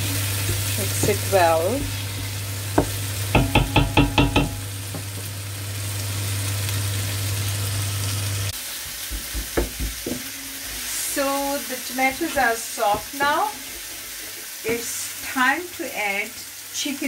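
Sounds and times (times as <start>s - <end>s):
paste sizzling in a pot: 0.0s - 17.0s
wooden spoon knocking pot: 0.5s - 2.0s, 2.8s - 5.1s, 9.1s - 10.9s.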